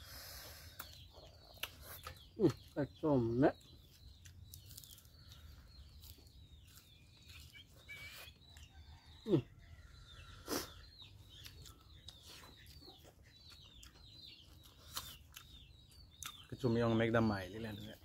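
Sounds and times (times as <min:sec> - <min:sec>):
small birds chirping: 0:00.0 - 0:18.0
chewing and lip smacks: 0:00.8 - 0:02.7, 0:11.2 - 0:16.5.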